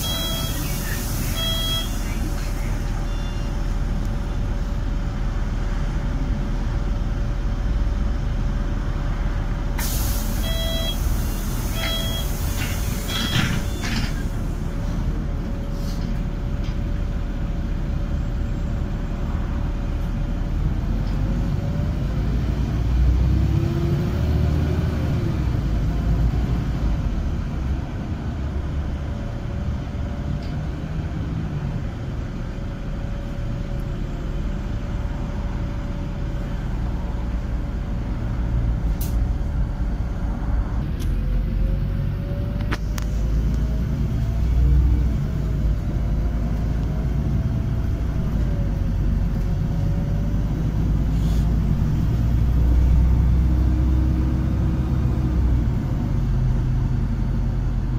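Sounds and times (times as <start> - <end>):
short beeps: 0.0 - 2.0, 3.0 - 3.5, 10.4 - 11.0, 11.8 - 12.3
bus engine and road rumble: 0.0 - 57.9
air hiss: 9.8 - 10.4.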